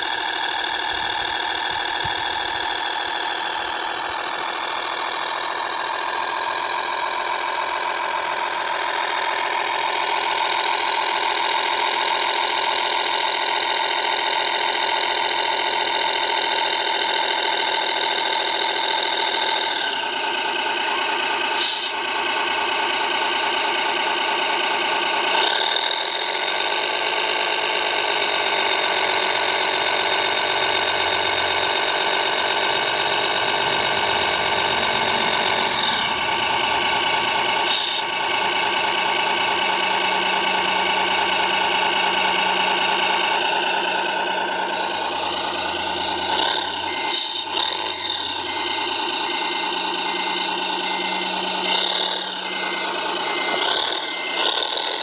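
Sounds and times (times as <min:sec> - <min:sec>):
whine of motors and hydraulics: 0:18.8 - 0:22.1, 0:42.2 - 0:55.0.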